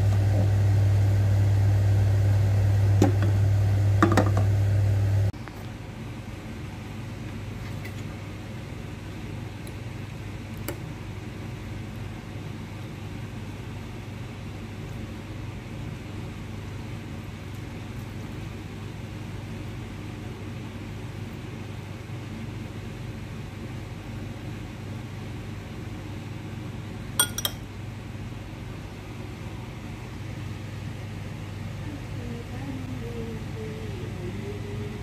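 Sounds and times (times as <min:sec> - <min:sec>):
low appliance hum: 0:00.0 - 0:35.0
fork clinking on glass bowl: 0:27.2 - 0:27.6.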